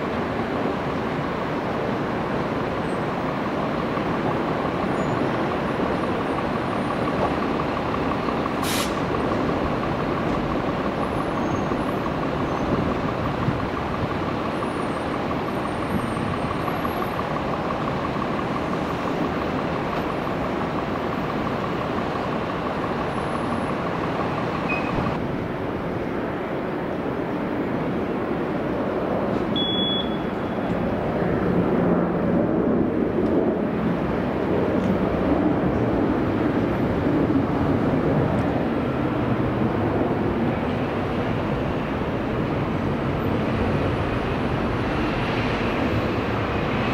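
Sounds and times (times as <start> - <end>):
jet engines roaring: 0.0 - 46.9
brief hiss: 8.6 - 9.0.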